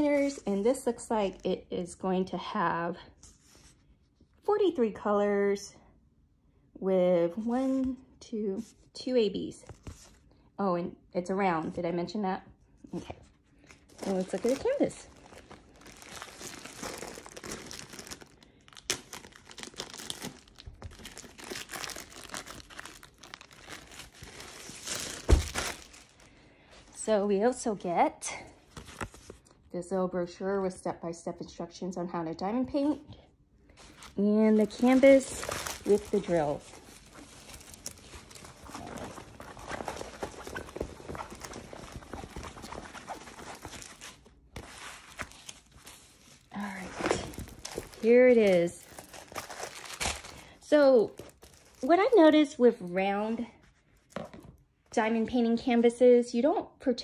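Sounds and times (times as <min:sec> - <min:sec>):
plastic wrap crinkling and tearing: 0:13.6 - 0:26.4, 0:33.7 - 0:52.4.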